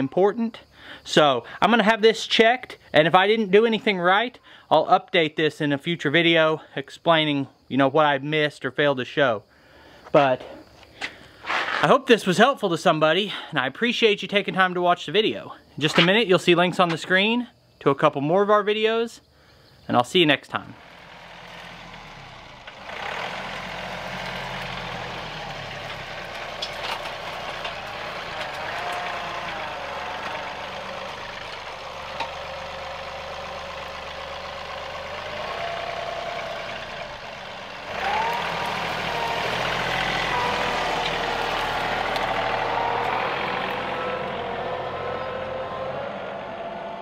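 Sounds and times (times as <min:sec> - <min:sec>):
tractor diesel engine running: 0:20.7 - 0:47.0.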